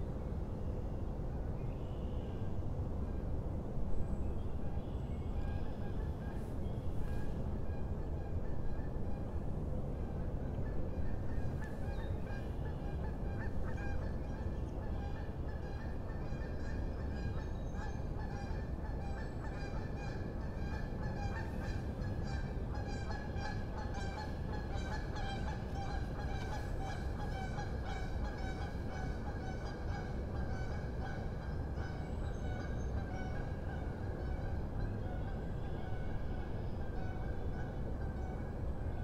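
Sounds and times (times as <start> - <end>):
geese honking: 18.2 - 38.4.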